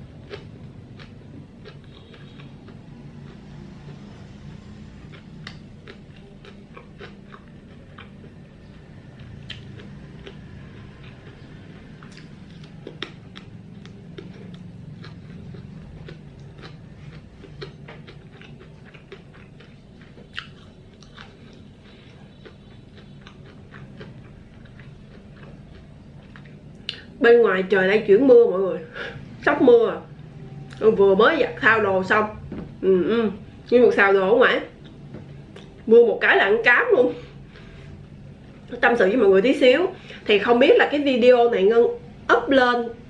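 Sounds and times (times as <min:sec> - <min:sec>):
close chewing mouth sounds: 0:00.0 - 0:27.2, 0:34.6 - 0:35.9
steady low hum: 0:00.0 - 0:43.0.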